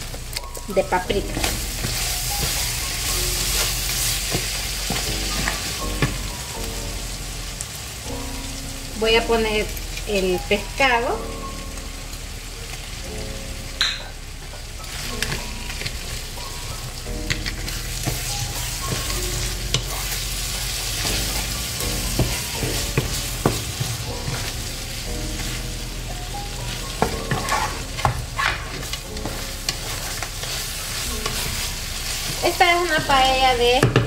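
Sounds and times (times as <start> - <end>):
stirring sounds: 0.0 - 7.1, 14.4 - 34.0
food sizzling in a frying pan: 0.0 - 34.0.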